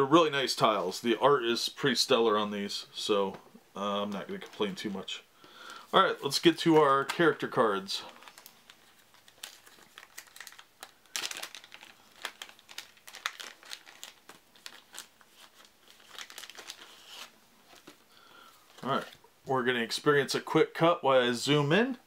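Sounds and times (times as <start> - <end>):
plastic shrink-wrap crinkling and tearing: 6.3 - 18.0.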